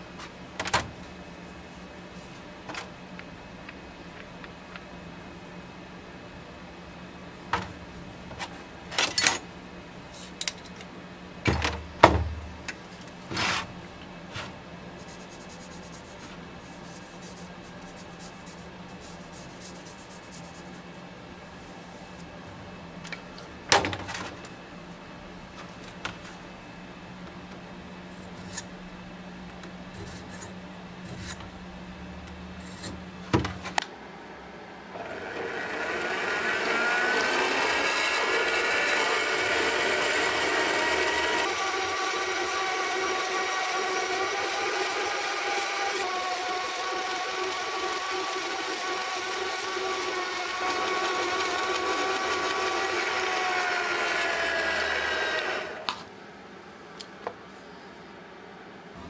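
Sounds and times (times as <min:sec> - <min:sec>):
bandsaw cutting metal: 0:35.0 - 0:55.9.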